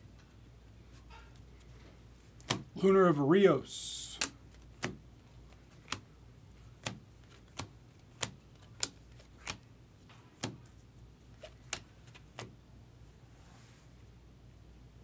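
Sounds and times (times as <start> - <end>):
cards flicked snapping: 2.3 - 2.7, 4.0 - 12.6.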